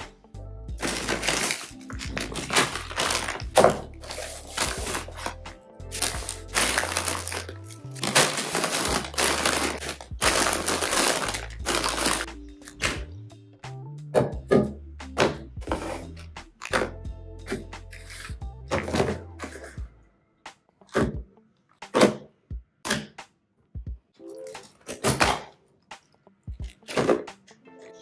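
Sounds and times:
background music: 0.0 - 28.0
plastic packaging crinkling: 0.8 - 13.0.

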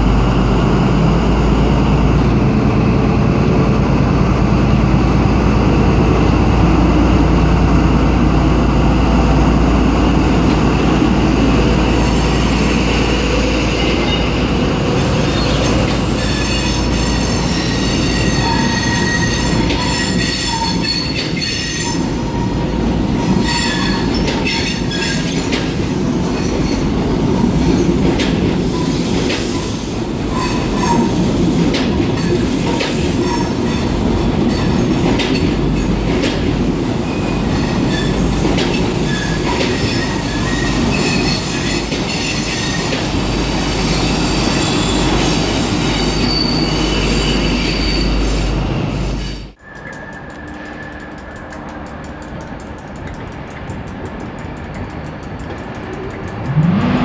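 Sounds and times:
wheel-on-rail rumble: 0.0 - 44.1
wheels clicking over rail joints: 13.8 - 43.3, 49.6 - 57.0
wheel flange squeals: 15.2 - 25.4, 43.8 - 51.5.

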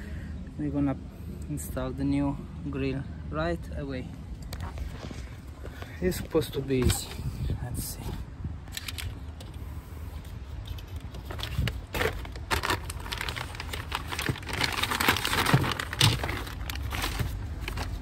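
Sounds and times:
plastic bag crinkling: 10.7 - 18.0.

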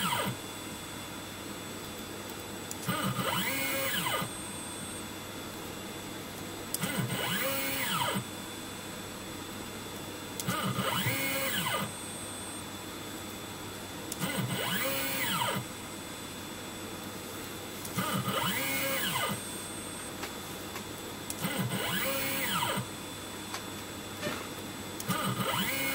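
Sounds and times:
stepper motor whine: 0.0 - 0.4, 2.8 - 5.1, 6.8 - 8.3, 10.4 - 12.7, 14.1 - 15.7, 18.0 - 20.1, 21.3 - 23.0, 25.0 - 25.9
faint hum: 0.0 - 25.9.

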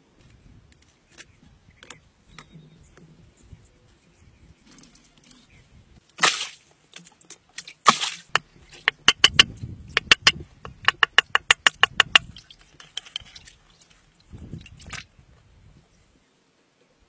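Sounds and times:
sharp clicks and splashes: 6.0 - 15.1
water splashing: 6.2 - 9.4.

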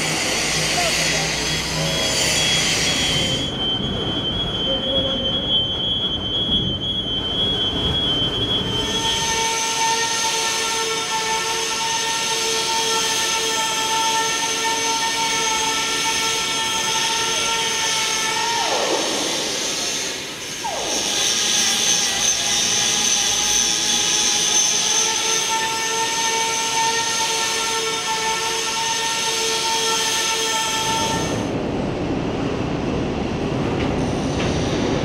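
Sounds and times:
mechanical whine: 0.0 - 11.1, 12.6 - 28.0
machinery low rumble: 1.1 - 9.0, 31.4 - 35.0.

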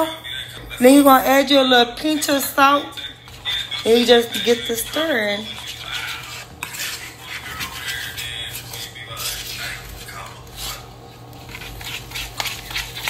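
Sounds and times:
metal spoon stirring batter: 2.1 - 13.0
spoon scraping and clinking bowl: 3.1 - 10.8, 11.4 - 13.0.

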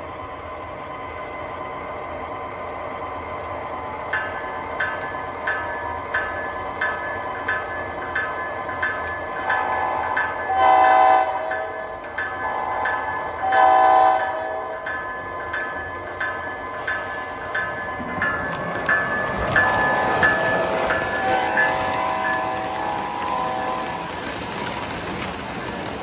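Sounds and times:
model train running: 2.0 - 26.0
model train horn blasts: 10.6 - 11.5, 13.5 - 14.6.

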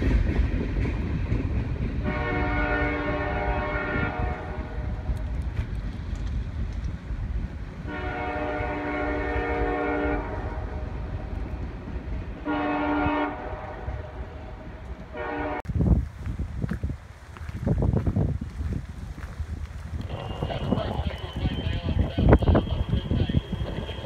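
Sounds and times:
locomotive air horn: 2.0 - 4.8, 7.9 - 10.8, 12.4 - 15.6.

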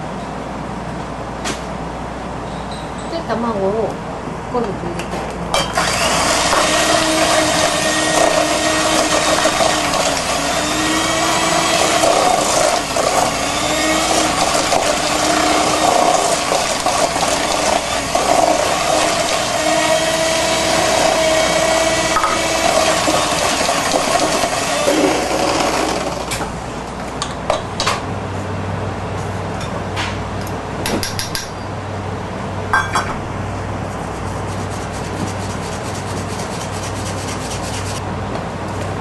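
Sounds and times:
electric hand mixer running: 5.6 - 26.4.

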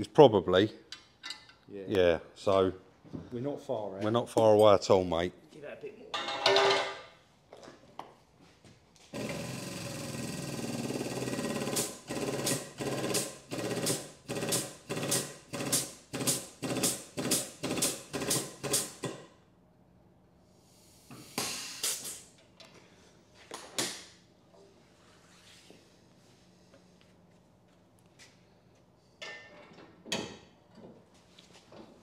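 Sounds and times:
hydraulic pump running in pulses: 9.2 - 19.0.

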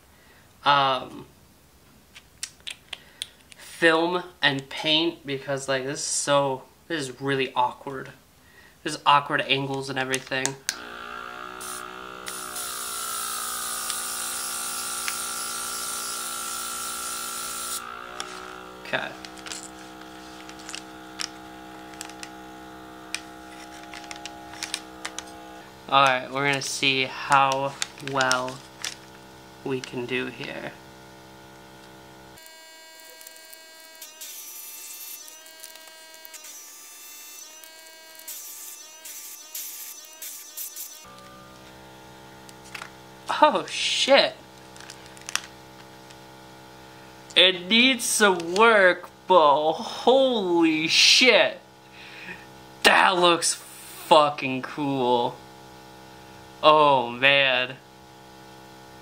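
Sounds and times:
airbrush compressor humming: 10.6 - 50.1
airbrush paint spray hiss: 11.6 - 41.1.

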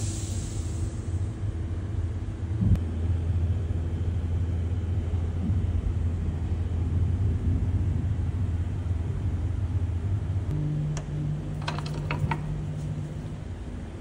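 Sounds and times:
workshop hum: 0.0 - 14.0.

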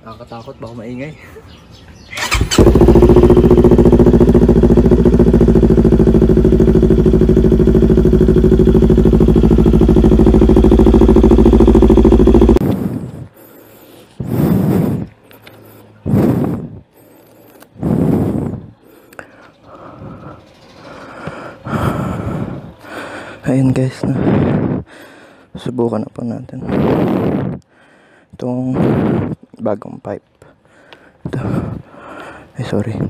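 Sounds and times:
motorcycle engine idling: 2.2 - 12.6, 18.4 - 23.4.

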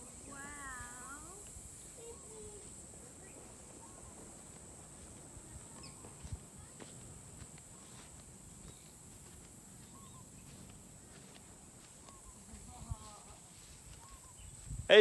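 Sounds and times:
faint bird chirps: 1.8 - 4.2, 5.7 - 6.3, 7.7 - 9.0, 9.8 - 11.2, 11.8 - 14.8.

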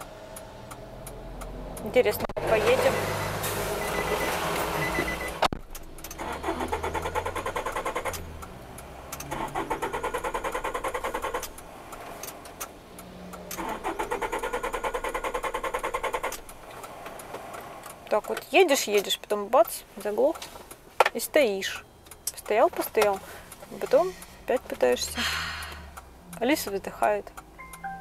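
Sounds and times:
starter motor cranking engine: 6.0 - 8.3, 13.5 - 16.5.

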